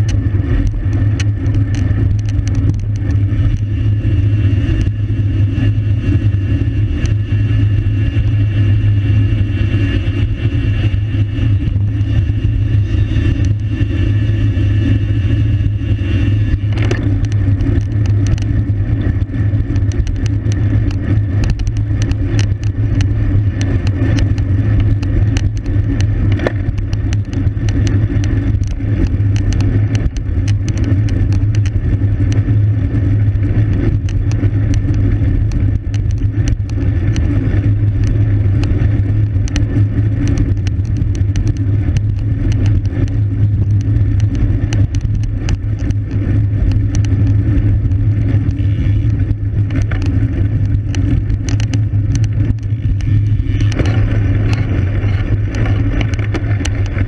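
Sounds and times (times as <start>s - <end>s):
road and tyre noise: 0.0s - 57.0s
wind rushing over microphone: 0.0s - 57.0s
thin high whine: 3.2s - 17.4s, 48.4s - 49.4s.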